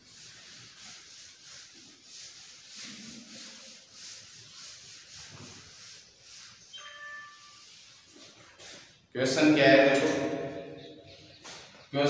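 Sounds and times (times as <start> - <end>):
duster rubbing on chalkboard: 0.0 - 9.0.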